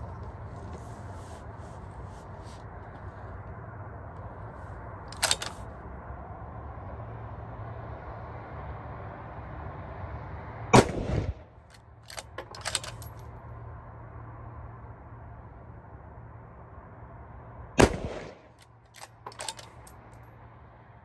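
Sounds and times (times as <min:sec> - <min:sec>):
rifle bolt metallic clicks: 0:05.1 - 0:05.7, 0:11.7 - 0:13.2, 0:17.8 - 0:20.2
rifle shot: 0:10.8 - 0:11.5, 0:17.8 - 0:18.6.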